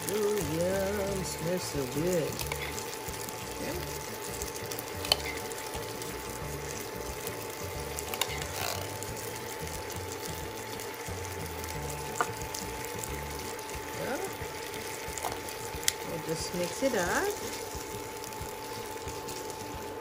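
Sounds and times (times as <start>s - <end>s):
metal spoon scraping in tin can: 5.0s - 5.5s, 8.1s - 9.0s.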